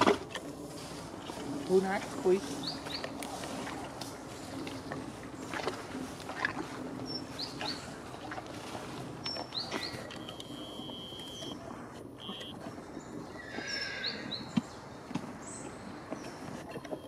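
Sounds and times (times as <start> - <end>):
soft rustles and clicks: 0.0 - 13.3
birds chirping: 0.0 - 17.0.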